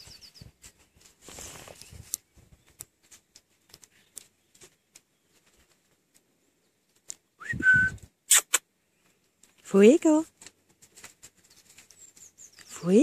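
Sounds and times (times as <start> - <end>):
horse stepping and grazing: 0.0 - 6.2, 10.3 - 12.9.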